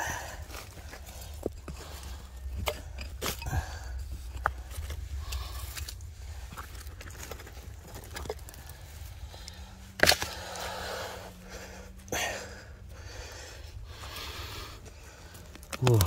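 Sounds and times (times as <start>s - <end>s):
steady low rumble: 0.0s - 16.0s
digging knocks among stones: 2.4s - 8.7s, 9.9s - 10.5s, 15.4s - 16.0s.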